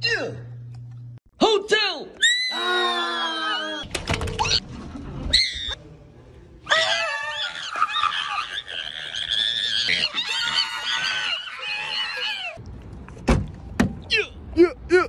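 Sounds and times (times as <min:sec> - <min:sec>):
person screaming high-pitched: 0:02.2 - 0:03.8.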